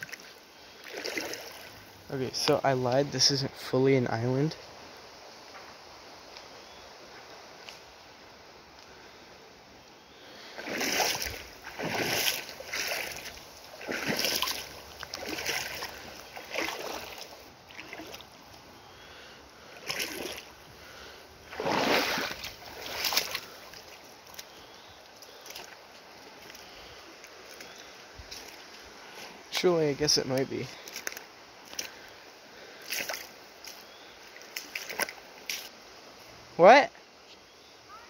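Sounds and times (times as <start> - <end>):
footsteps splashing through water: 0.0 - 1.9, 10.6 - 18.6, 19.7 - 20.6, 21.5 - 28.8, 30.8 - 32.1, 32.8 - 35.7.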